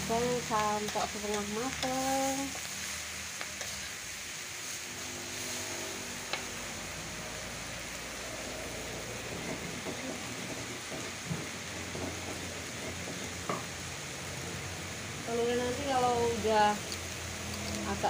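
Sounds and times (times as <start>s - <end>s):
vegetables sizzling in a wok: 0.0s - 18.0s.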